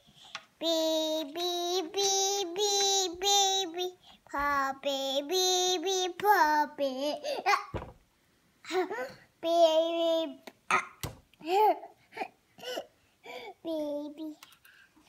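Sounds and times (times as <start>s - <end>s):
toddler singing: 0.6s - 7.8s, 8.7s - 11.9s, 13.6s - 14.4s.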